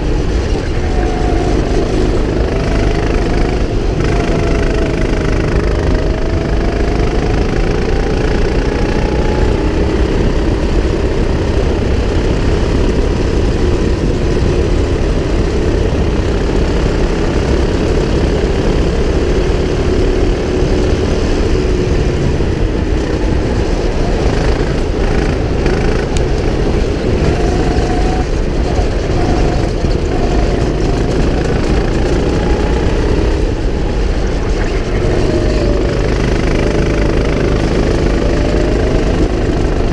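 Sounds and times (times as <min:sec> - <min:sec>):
go-kart engine running: 0:00.0 - 0:39.9.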